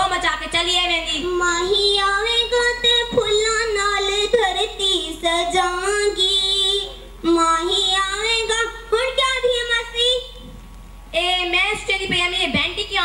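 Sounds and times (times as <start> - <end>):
girl singing into microphone: 0.7 - 10.2.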